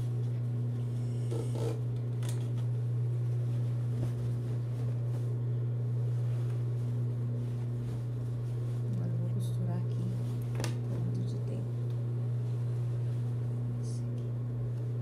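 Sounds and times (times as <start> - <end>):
sewing machine motor humming: 0.9 - 2.5
denim rustling: 2.8 - 9.2.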